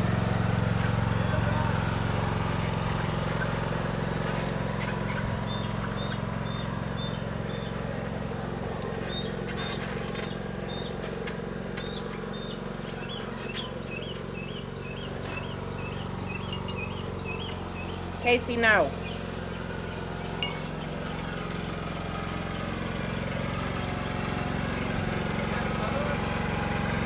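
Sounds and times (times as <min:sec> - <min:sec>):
riding lawn mower engine: 0:00.0 - 0:27.0
bird chirping: 0:11.7 - 0:18.0.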